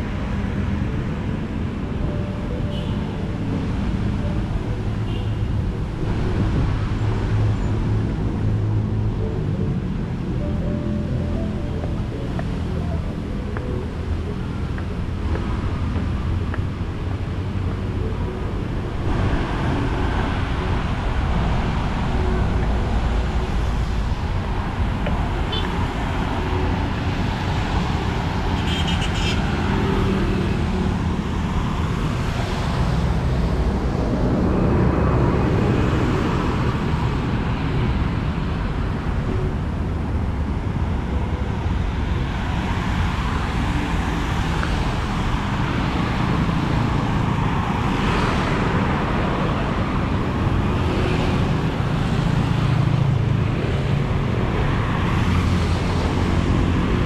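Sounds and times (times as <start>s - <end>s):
vehicles passing on wet road: 0.0s - 57.0s.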